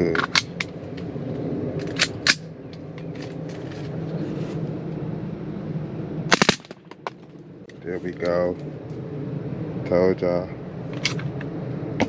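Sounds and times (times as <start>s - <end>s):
steady hum: 0.0s - 12.0s
rapid rifle shots: 6.3s - 6.8s.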